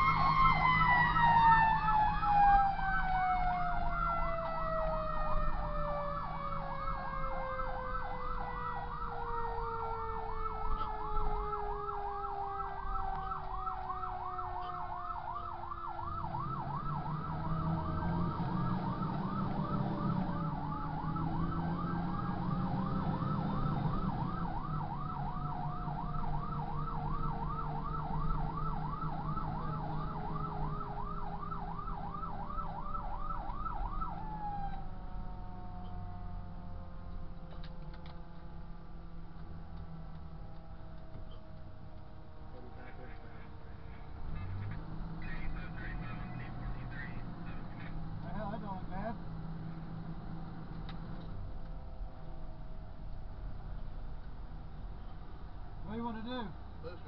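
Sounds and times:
siren yelping: 0:00.0 - 0:36.9, 0:42.6 - 0:48.9
siren winding down: 0:00.0 - 0:38.0
truck engine rumbling: 0:00.0 - 0:57.0.

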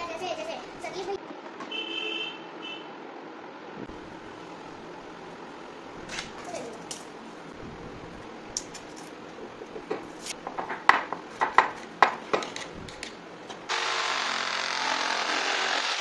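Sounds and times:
electric jigsaw cutting plywood: 0:13.7 - 0:16.0.

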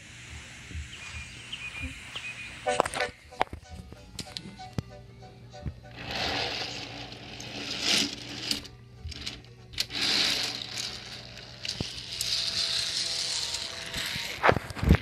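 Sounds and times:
plastic toy trains clicking and rattling: 0:06.0 - 0:15.0.

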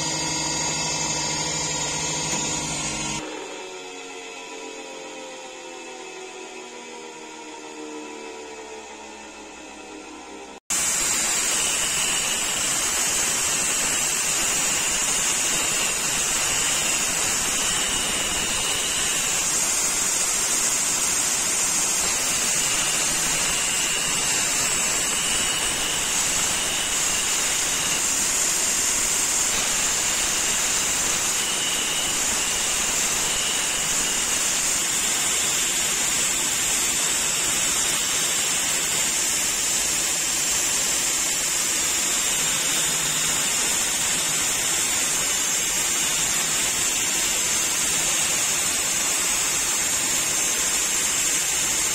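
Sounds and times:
belt grinder grinding steel: 0:10.8 - 0:51.9.

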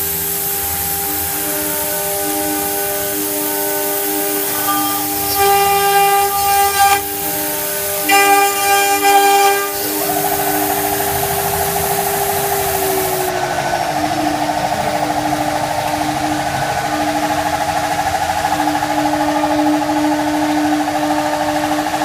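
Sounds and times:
cutter milling fibreglass: 0:00.0 - 0:17.4
router spindle whining: 0:00.0 - 0:22.0.

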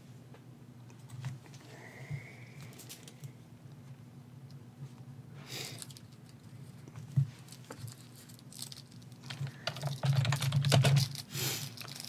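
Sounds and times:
clicking and tapping at a desk: 0:09.3 - 0:11.1.

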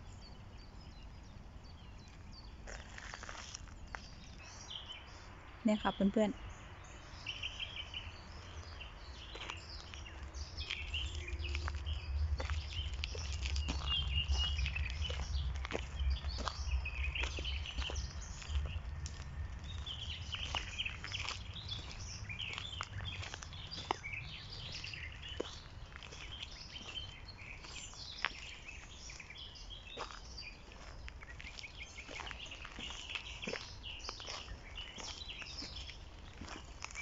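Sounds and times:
small birds chirping: 0:00.0 - 0:37.0
low rumble: 0:09.6 - 0:25.1.

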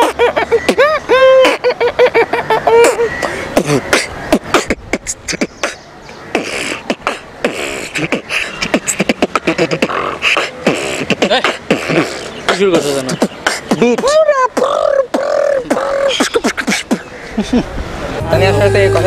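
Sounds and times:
man beatboxing: 0:00.0 - 0:01.6, 0:02.8 - 0:17.1.

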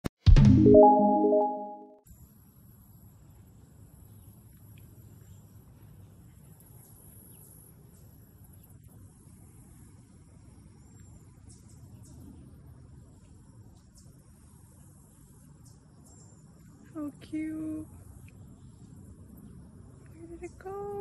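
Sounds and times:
brief high note: 0:00.3 - 0:02.0.

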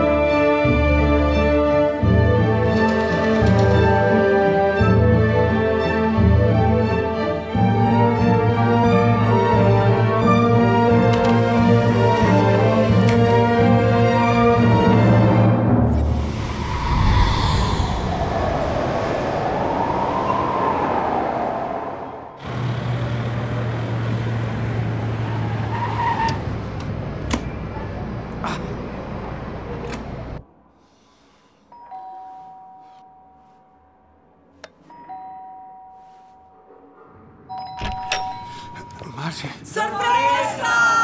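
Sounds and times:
orchestral music: 0:00.0 - 0:17.9
road noise: 0:00.0 - 0:35.0.

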